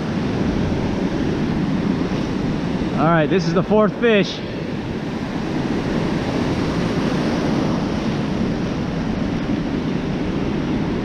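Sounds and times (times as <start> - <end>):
ocean surf breaking: 0.0 - 11.0
wind on microphone: 0.0 - 11.0.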